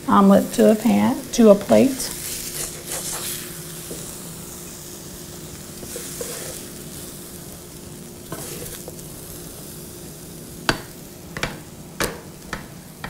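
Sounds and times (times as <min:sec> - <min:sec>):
eggs sizzling on a griddle: 0:00.2 - 0:13.0
spatula scrapes and taps: 0:05.8 - 0:06.6, 0:08.3 - 0:09.0.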